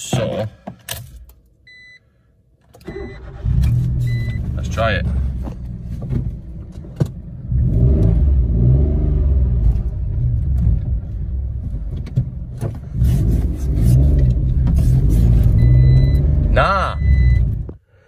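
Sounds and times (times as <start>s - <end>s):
car engine running: 3.4s - 17.8s.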